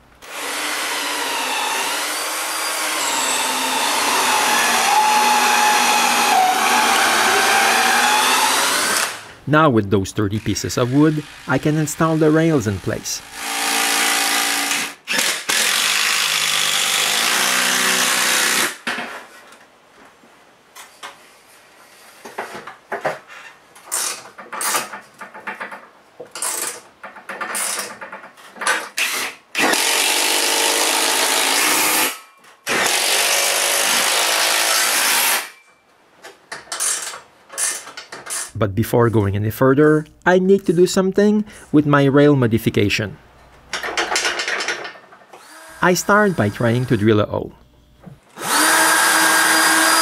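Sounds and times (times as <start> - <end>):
cordless drill driving screws: 0.2 - 9.3, 10.9 - 12.2, 13.2 - 18.8, 29.0 - 35.6, 45.4 - 47.0, 48.3 - 50.0.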